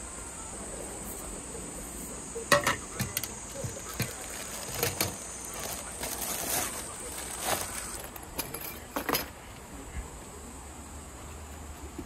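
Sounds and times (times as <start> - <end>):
plastic bag crinkling: 3.0 - 8.4.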